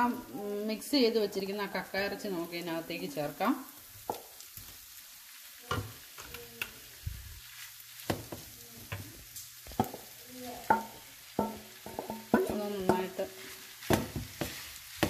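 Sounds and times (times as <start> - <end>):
faint sizzle of frying: 0.0 - 15.0
wooden spatula knocking: 9.7 - 15.0.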